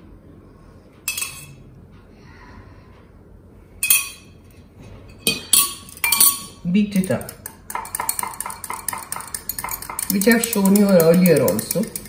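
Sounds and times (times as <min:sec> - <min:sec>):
metal spoon clinking on bowls: 0:01.1 - 0:01.6, 0:03.8 - 0:04.3, 0:05.1 - 0:12.0.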